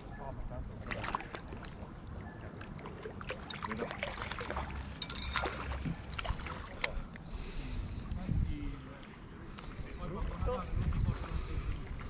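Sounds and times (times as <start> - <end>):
wind rumble on microphone: 7.7 - 12.0.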